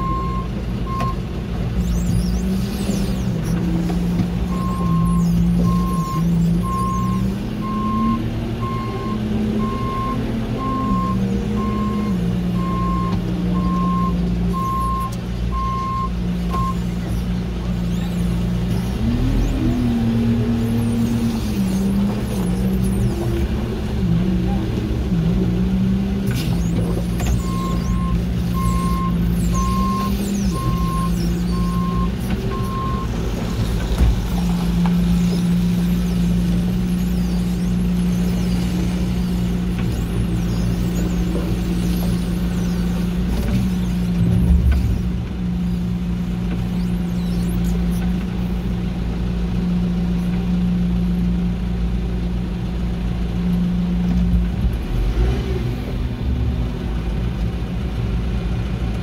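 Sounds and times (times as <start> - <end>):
reversing alarm beeps: 0.0 - 1.2, 4.5 - 16.8, 26.4 - 33.1
diesel engine running: 0.0 - 59.0.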